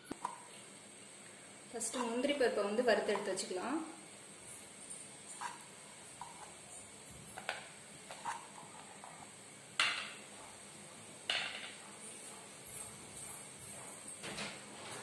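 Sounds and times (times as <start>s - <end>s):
plate clattering on counter: 9.8s - 10.2s, 11.3s - 11.8s.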